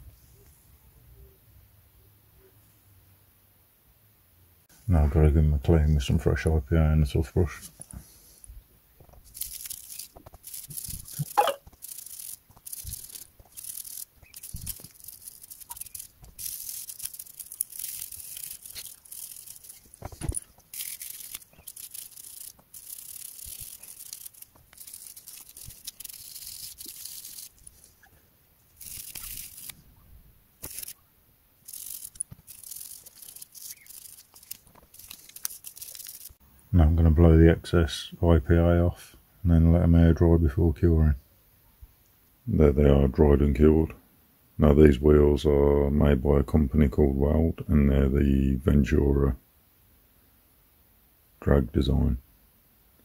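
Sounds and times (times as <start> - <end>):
toothbrush scrubbing: 9.3 - 27.9, 28.8 - 29.7, 31.7 - 36.4.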